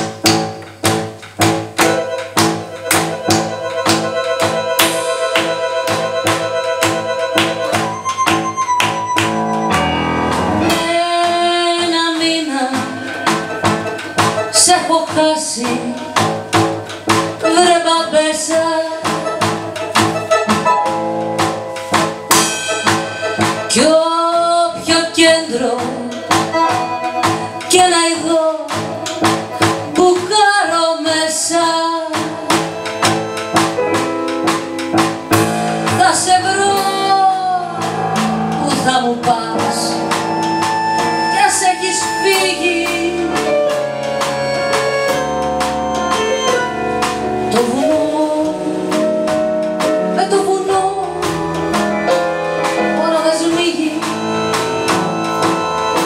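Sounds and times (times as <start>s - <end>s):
drum kit: 0.0s - 56.0s
keyboard: 0.0s - 56.0s
accordion: 1.2s - 24.0s, 26.0s - 36.5s, 37.8s - 56.0s
woman singing: 10.6s - 16.6s, 17.4s - 19.5s, 23.7s - 32.9s, 35.8s - 40.3s, 41.2s - 43.9s, 47.5s - 54.5s.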